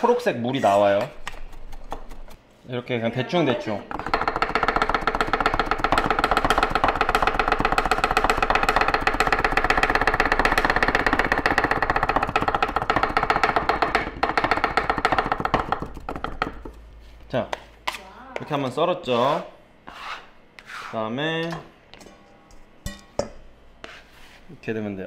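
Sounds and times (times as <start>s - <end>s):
knife chopping on wooden board: 3.9s - 16.8s.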